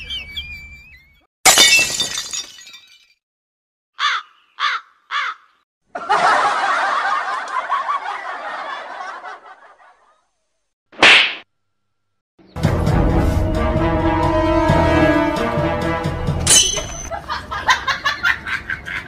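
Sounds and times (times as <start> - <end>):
laughter: 5.9 - 10.3, 17.1 - 19.0.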